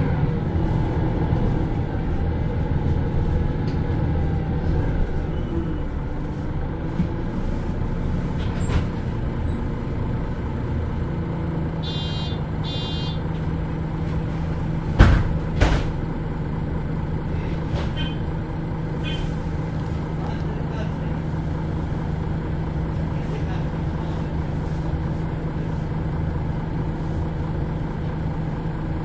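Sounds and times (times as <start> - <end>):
bus diesel engine droning: 0.0 - 29.0
short high beeps: 11.8 - 13.2
loud knocks: 14.9 - 16.0.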